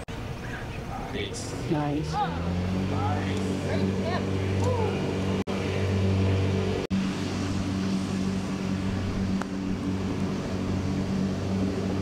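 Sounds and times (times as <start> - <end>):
low engine hum: 0.0 - 12.0.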